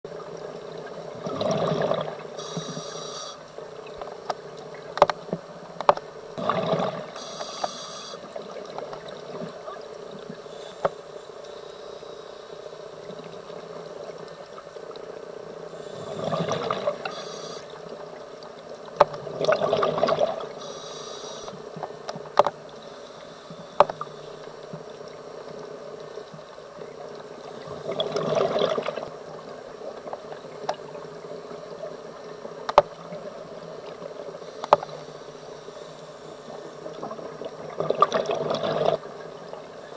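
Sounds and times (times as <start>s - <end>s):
steady hum: 0.1s - 19.2s, 20.2s - 28.0s.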